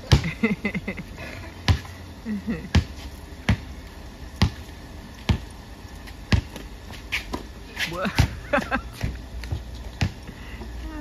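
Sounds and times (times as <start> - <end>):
basketball bouncing on concrete: 0.0 - 0.5, 1.6 - 1.9, 2.6 - 3.8, 4.4 - 10.7.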